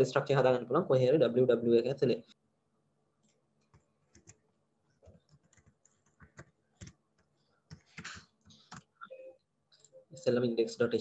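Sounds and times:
computer keyboard typing: 3.7 - 4.4, 5.0 - 8.9.

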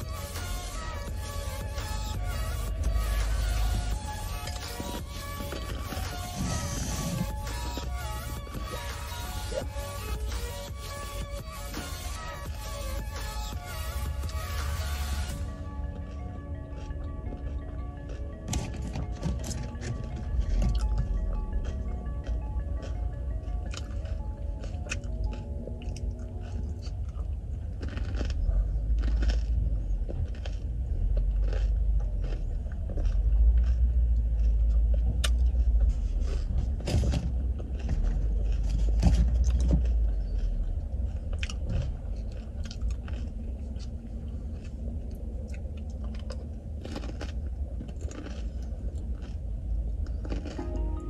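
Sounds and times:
crisp shells crunching when chewed: 0.0 - 51.0
low rumble: 0.0 - 51.0.

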